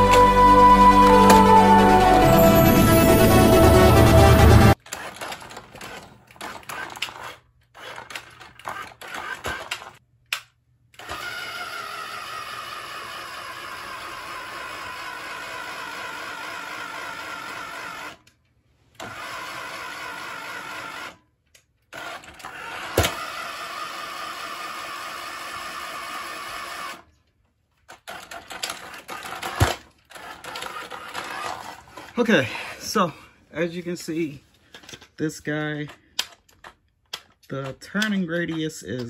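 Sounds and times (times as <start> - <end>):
toy car motor whining: 4.8 - 10.0, 11.0 - 21.3, 21.9 - 27.1, 27.9 - 32.3
toy car bumping and clattering: 4.8 - 11.4, 20.6 - 23.8, 27.7 - 32.2, 34.7 - 39.0.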